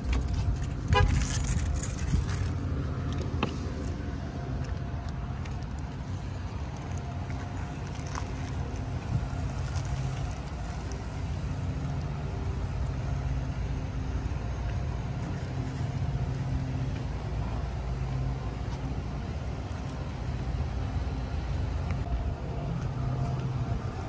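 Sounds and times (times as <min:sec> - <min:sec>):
vehicle engine idling: 0:00.0 - 0:24.0.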